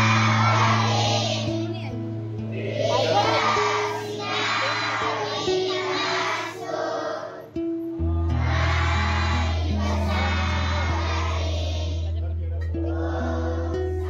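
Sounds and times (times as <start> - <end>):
voices singing together: 0.0 - 1.7, 2.4 - 14.0
deep bass note: 8.0 - 14.0.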